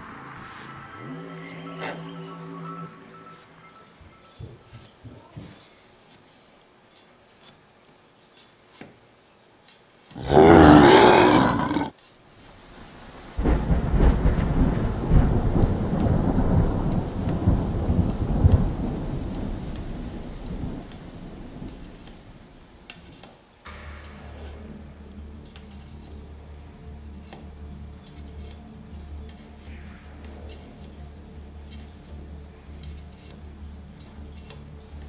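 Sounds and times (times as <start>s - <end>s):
thunder rumble: 12.7s - 22.9s
thunder crackling crash: 12.8s - 22.8s.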